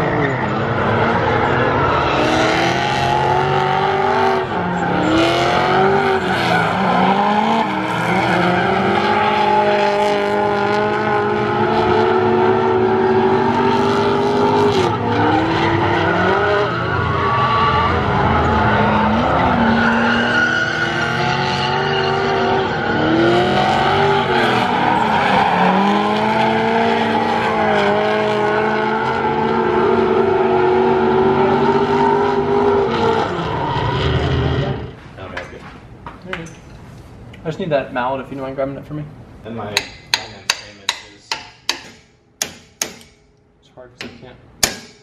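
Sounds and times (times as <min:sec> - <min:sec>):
car engines revving: 0:00.0 - 0:35.3.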